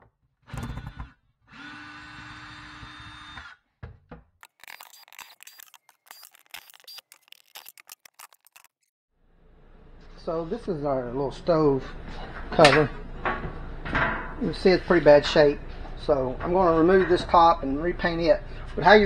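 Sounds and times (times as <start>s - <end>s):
cordless drill running: 0.6s - 3.5s, 4.4s - 8.2s.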